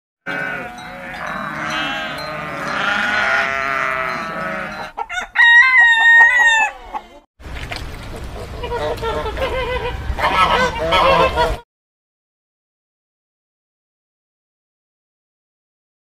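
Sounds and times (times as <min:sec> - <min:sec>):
goats bleating: 0:00.3 - 0:05.0
rooster crowing: 0:00.6 - 0:07.1.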